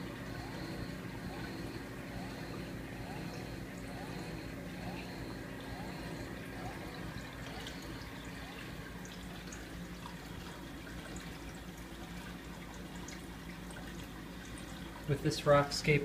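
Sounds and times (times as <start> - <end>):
water drips: 0.0 - 15.9
low pump hum: 0.0 - 16.0
water trickling and splashing: 5.3 - 16.0.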